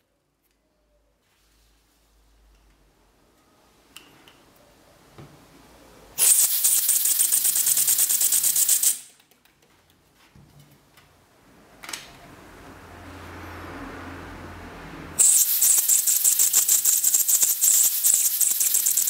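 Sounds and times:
air engine pulsing hiss: 0:15.2 - 0:19.0.

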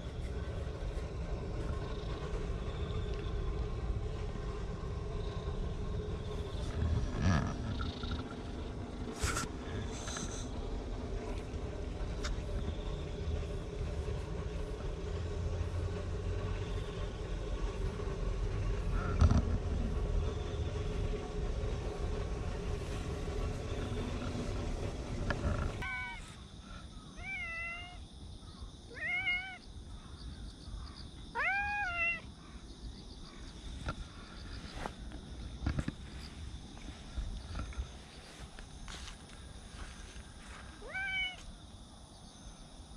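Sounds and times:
steady low rumble: 0:00.0 - 0:42.9
cat meowing: 0:25.8 - 0:26.3, 0:27.2 - 0:28.0, 0:28.9 - 0:29.6, 0:31.4 - 0:32.3, 0:40.8 - 0:41.4.

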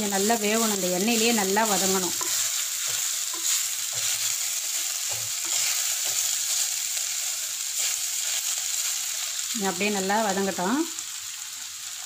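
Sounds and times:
food sizzling in hot oil: 0:00.0 - 0:12.0
wooden spatula scraping pot: 0:00.5 - 0:06.6.

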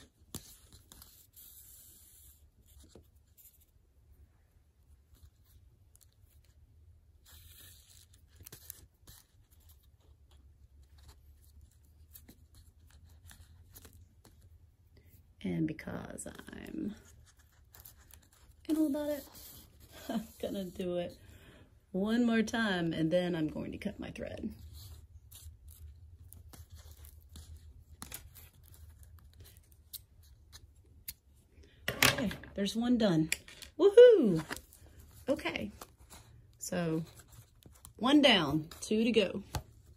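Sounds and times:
thread rustling through paper: 0:04.8 - 0:15.2, 0:16.3 - 0:21.3, 0:24.2 - 0:31.4, 0:33.3 - 0:39.9
paper handling: 0:24.8 - 0:31.2, 0:33.4 - 0:38.8.

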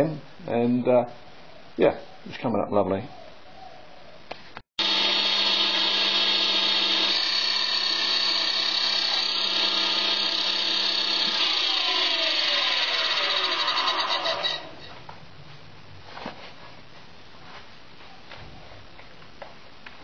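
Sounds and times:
abrasive disc grinding steel: 0:04.8 - 0:14.9.

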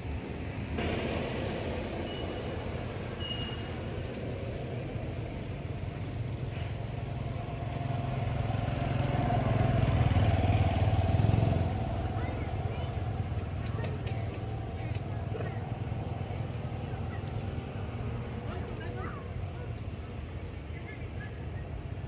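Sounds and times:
engine rumbling: 0:00.0 - 0:22.0.

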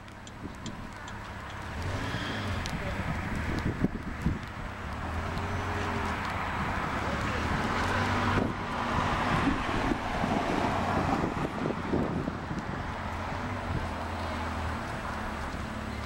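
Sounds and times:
street traffic noise: 0:00.0 - 0:16.0
wind rumbling on microphone: 0:00.0 - 0:16.0
car driving past: 0:01.6 - 0:03.0.

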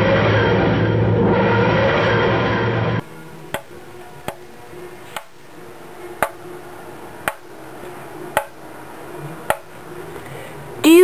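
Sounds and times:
faint steady hum: 0:03.0 - 0:11.0
sharp knocks: 0:03.5 - 0:03.7, 0:08.4 - 0:08.6, 0:09.5 - 0:09.7.

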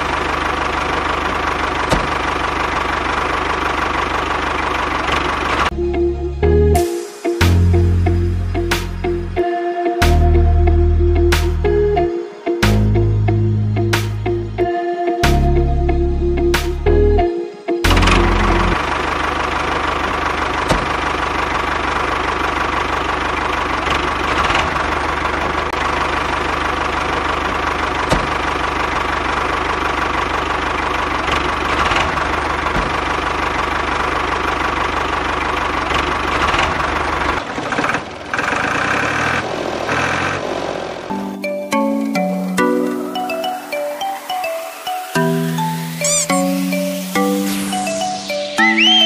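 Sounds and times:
tractor engine rumbling: 0:00.0 - 0:06.6, 0:17.8 - 0:47.2
music: 0:05.7 - 0:18.8, 0:41.1 - 0:49.0.

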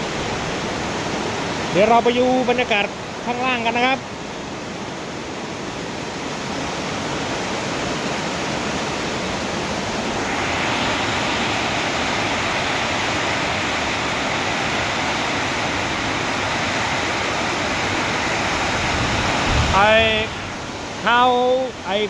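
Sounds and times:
heavy rain pouring: 0:09.7 - 0:22.0.

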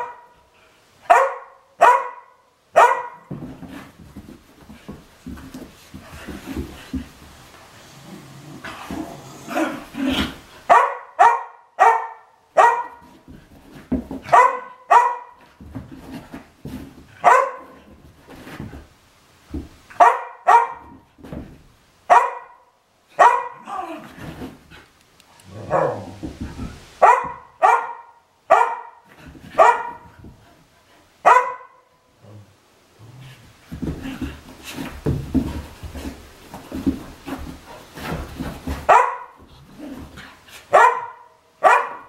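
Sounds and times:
dogs barking: 0:01.1 - 0:03.2, 0:10.7 - 0:13.0, 0:20.0 - 0:20.9, 0:27.0 - 0:29.0, 0:29.6 - 0:30.0, 0:40.7 - 0:42.0.

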